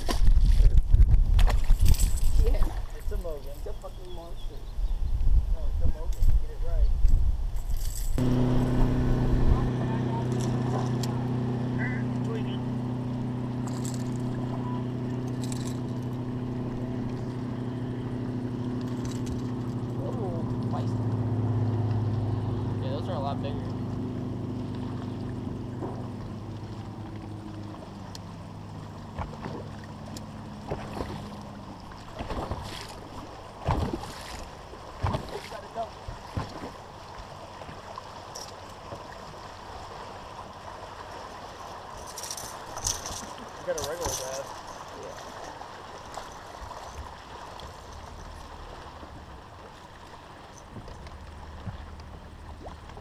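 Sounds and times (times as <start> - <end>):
steady low rumble: 8.2 - 29.0
knocks and handling on boat: 8.2 - 36.9, 46.1 - 53.0
boat motor humming: 8.2 - 53.0.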